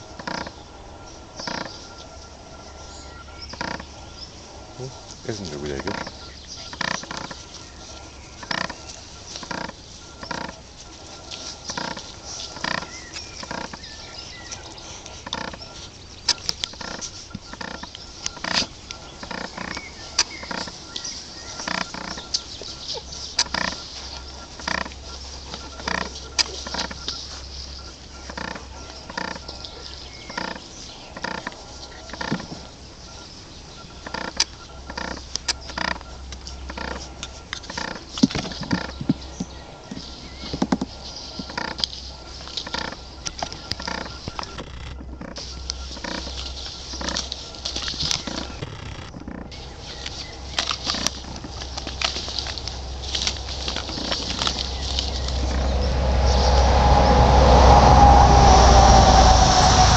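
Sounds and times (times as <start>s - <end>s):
puppies grunting and yipping: 0.0s - 56.6s
sharp clicks: 8.4s - 32.7s, 33.8s - 49.6s.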